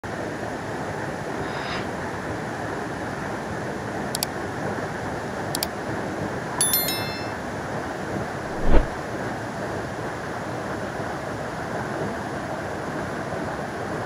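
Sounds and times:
short ringing sound: 6.6s - 7.5s.

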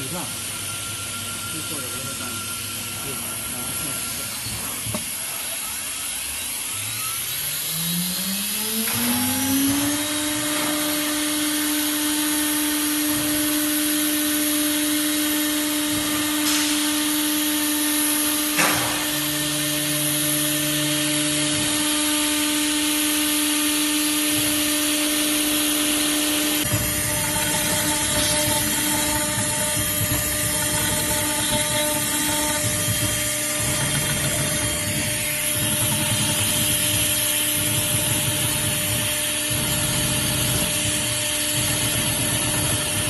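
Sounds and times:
spindle motor whine: 0.0s - 43.0s.

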